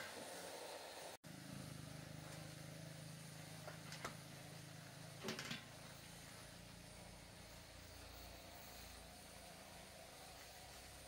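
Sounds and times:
steady low hum: 1.3s - 11.0s.

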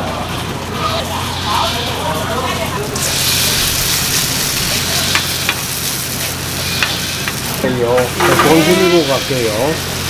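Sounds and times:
batter sizzling in hot oil: 2.8s - 10.0s.

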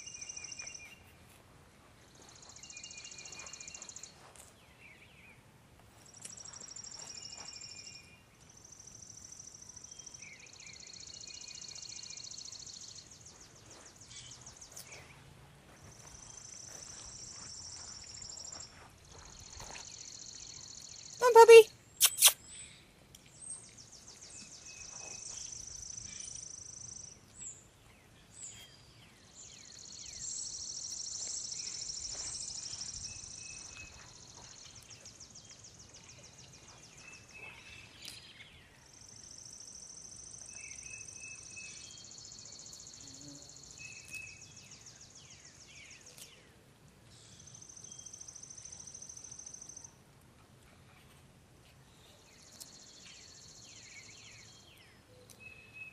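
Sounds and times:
bird chirps: 2.2s - 5.3s, 6.0s - 15.2s, 15.9s - 22.8s, 28.4s - 46.4s.

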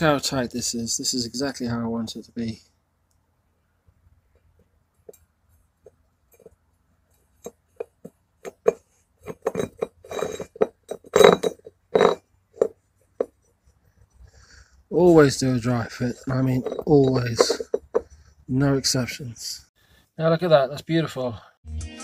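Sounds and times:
short scrapes: 8.4s - 13.4s.

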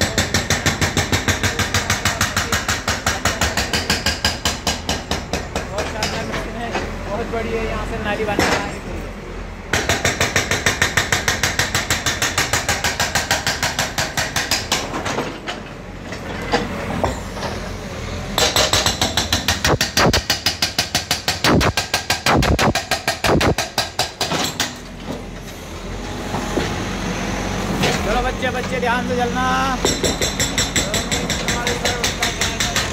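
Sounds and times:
hydraulic breaker hammering concrete: 0.0s - 6.4s, 9.7s - 15.4s, 18.4s - 24.8s, 29.8s - 32.9s
diesel engine running: 25.2s - 29.9s.

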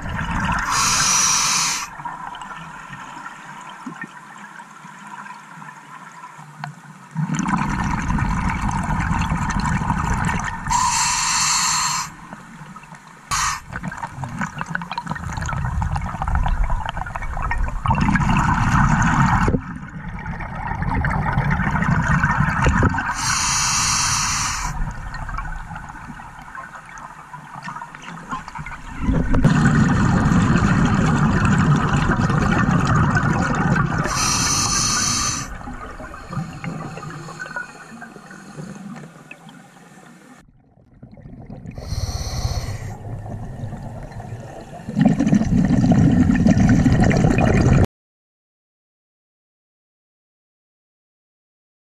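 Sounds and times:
regulator inhalation hiss: 0.6s - 1.9s, 10.7s - 12.2s, 13.3s - 13.7s, 23.1s - 24.8s, 34.0s - 35.6s, 41.8s - 43.0s
bubbling exhalation underwater: 7.2s - 11.4s, 13.3s - 25.6s, 28.3s - 37.6s, 40.9s - 47.9s.

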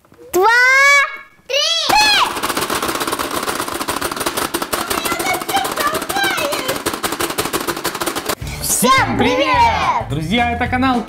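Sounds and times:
rapid plastic button clicks: 2.5s - 8.4s.

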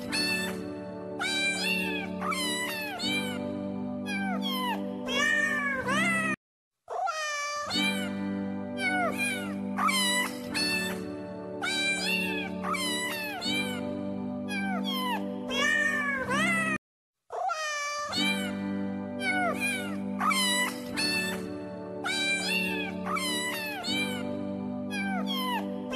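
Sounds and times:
cat meowing: 0.0s - 0.6s, 1.2s - 3.4s, 4.1s - 8.1s, 8.8s - 11.0s, 11.6s - 13.8s, 14.5s - 18.6s, 19.2s - 21.4s, 22.0s - 24.2s, 24.9s - 25.7s
background music: 0.0s - 6.4s, 7.7s - 16.8s, 18.2s - 25.9s.

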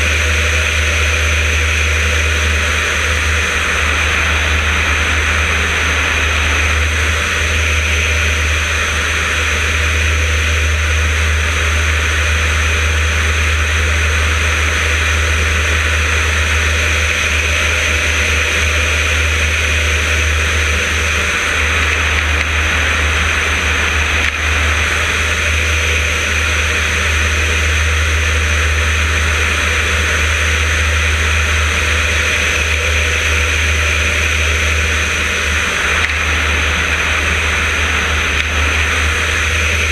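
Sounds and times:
propeller plane engine running: 0.0s - 39.9s
airflow rushing: 1.3s - 10.4s, 32.9s - 39.9s.

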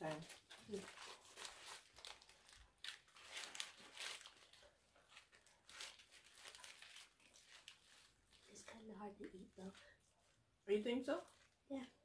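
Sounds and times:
paper wrappers crinkling: 0.0s - 10.4s, 11.0s - 12.0s.

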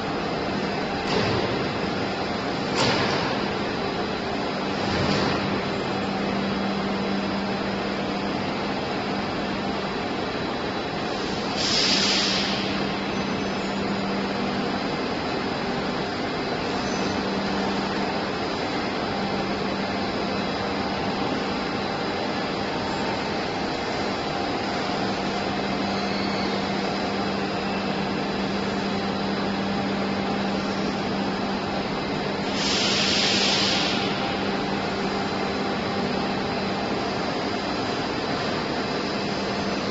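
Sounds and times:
machinery hum and drone: 0.0s - 39.9s
short loud hiss: 11.6s - 12.6s, 32.6s - 34.2s.

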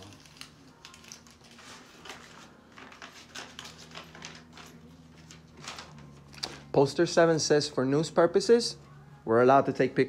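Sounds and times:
steady low hum: 1.6s - 10.0s.

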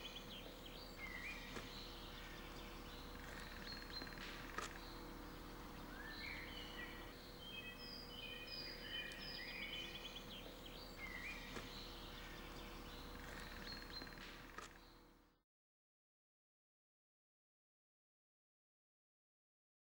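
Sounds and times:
faint steady hum: 0.0s - 15.4s
songbirds singing: 0.0s - 15.4s.

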